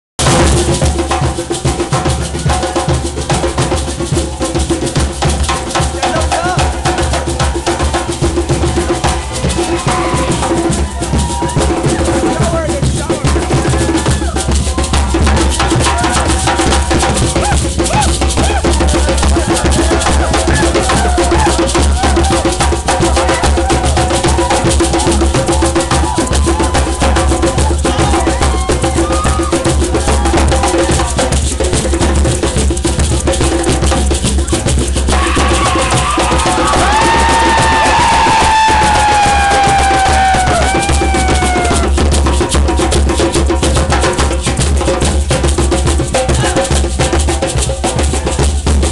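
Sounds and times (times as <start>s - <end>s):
frame drums fast rhythm: 0.2s - 48.9s
crowd voices: 5.7s - 42.5s, 45.2s - 46.9s.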